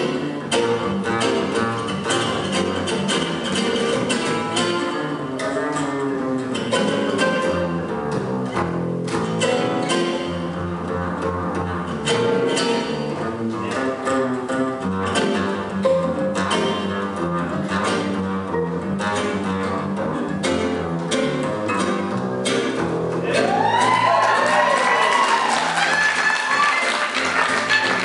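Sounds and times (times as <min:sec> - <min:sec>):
acoustic guitars strumming: 0:00.0 - 0:28.0
upright double bass: 0:00.0 - 0:28.0
violin: 0:08.9 - 0:21.7.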